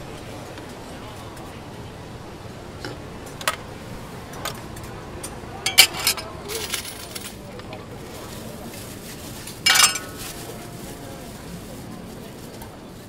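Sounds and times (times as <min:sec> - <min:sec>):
metal spoons clinking bowls: 0:05.7 - 0:07.3, 0:09.7 - 0:10.5
background din: 0:09.7 - 0:10.6.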